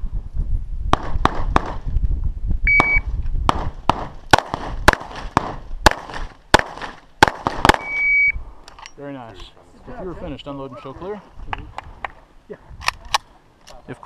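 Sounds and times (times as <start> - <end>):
shot timer beep: 2.7 - 3.0, 7.8 - 8.4
pistol shots: 2.8 - 8.0
sharp cracks: 2.8 - 8.0.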